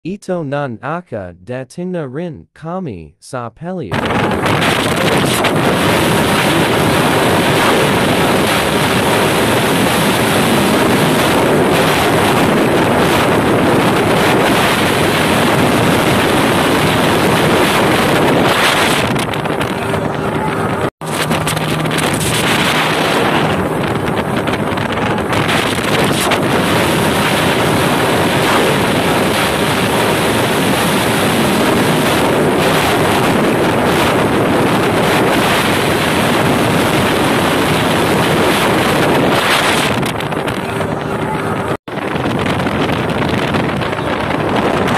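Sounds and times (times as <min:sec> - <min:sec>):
wind noise on microphone: 0:03.9 - 0:44.9
motorboat engine: 0:04.0 - 0:44.9.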